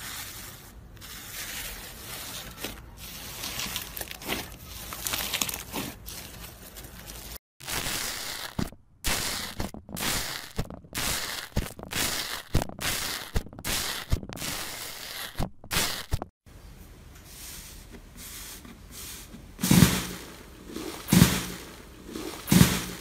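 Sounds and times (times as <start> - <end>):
foam slime bubbles crackling: 19.6 - 23.0.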